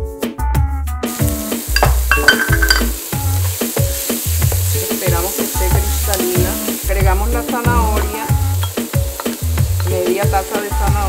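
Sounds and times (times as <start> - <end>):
background music with bass beat: 0.0 - 11.0
onion sizzling in a frying pan: 1.0 - 11.0
spatula stirring in a pan: 2.4 - 7.7, 8.3 - 11.0.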